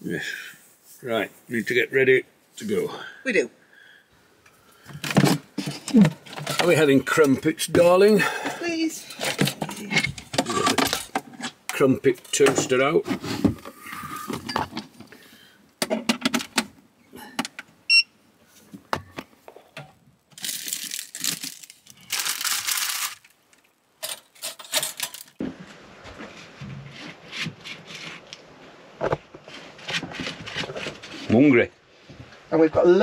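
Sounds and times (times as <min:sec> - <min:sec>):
plastic packet crinkling: 0:20.3 - 0:25.4.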